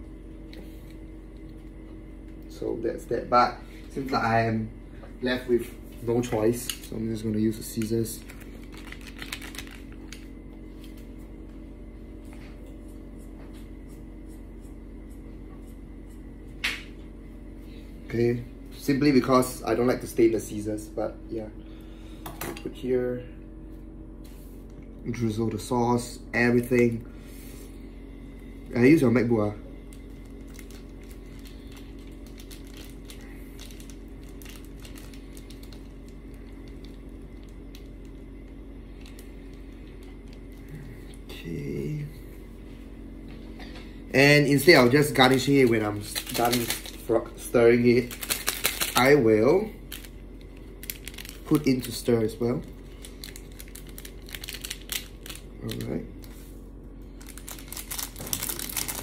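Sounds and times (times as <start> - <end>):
steady low hum: 0.0 - 59.0
plastic sachet crinkling: 6.6 - 11.0, 29.8 - 40.7, 44.6 - 56.4, 57.0 - 59.0.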